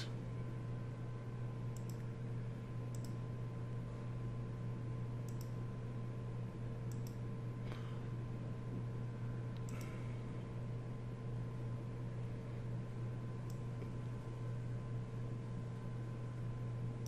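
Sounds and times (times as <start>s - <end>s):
low electrical hum: 0.0s - 17.0s
computer mouse clicking: 1.7s - 2.1s, 2.9s - 3.2s, 5.2s - 5.6s, 6.9s - 7.2s.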